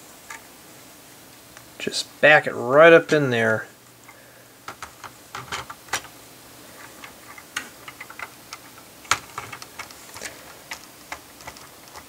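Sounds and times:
sharp plastic clacks: 7.0 - 12.0
toy car wheels clicking on plastic: 7.0 - 12.0.

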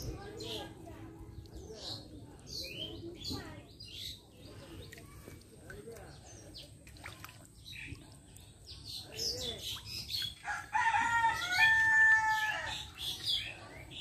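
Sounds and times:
small birds chirping: 0.0 - 14.0
rooster crowing: 10.5 - 12.8.

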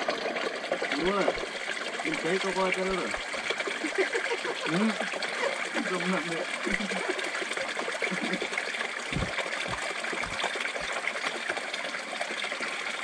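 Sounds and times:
water trickling: 0.0 - 13.0
low thumps: 9.1 - 10.9.

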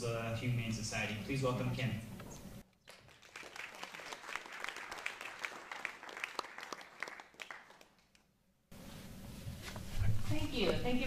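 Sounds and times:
audience applauding: 2.8 - 8.2.

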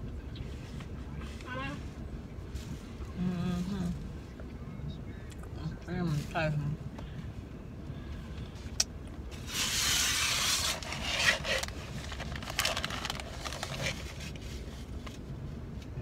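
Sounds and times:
cardboard box and paper rustling: 10.1 - 14.6.

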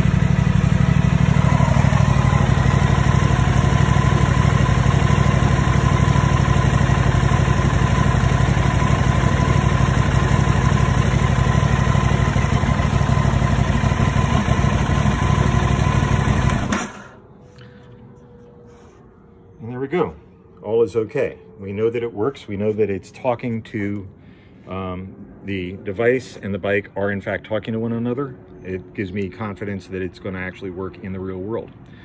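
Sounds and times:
motorcycle engine idling: 0.0 - 17.2.

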